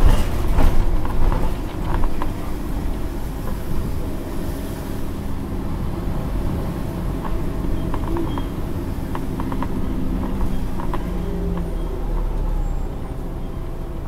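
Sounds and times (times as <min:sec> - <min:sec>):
bodywork clicks and rattles: 0:00.0 - 0:03.9, 0:07.2 - 0:12.3
diesel bus engine rumble: 0:00.0 - 0:14.0.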